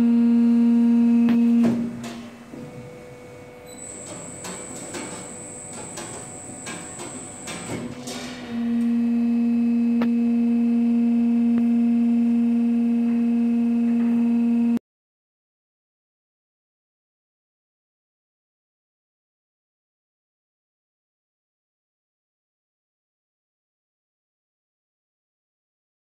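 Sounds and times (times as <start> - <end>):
faint high whine: 0.0 - 14.8.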